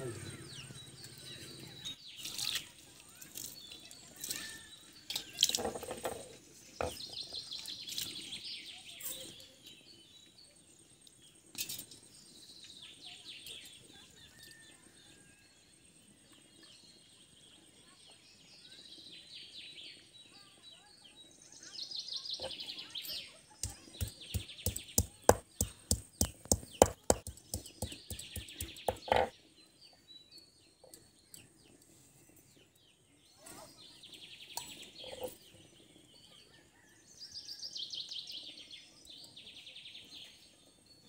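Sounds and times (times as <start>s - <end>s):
birds chirping: 0.0s - 14.4s, 21.2s - 36.9s
metal pots knocking and clinking: 26.4s - 29.3s.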